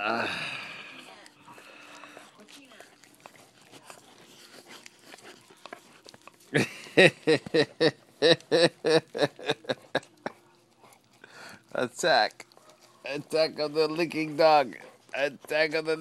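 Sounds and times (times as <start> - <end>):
dog licking: 0.8 - 16.0
person laughing: 6.5 - 10.3.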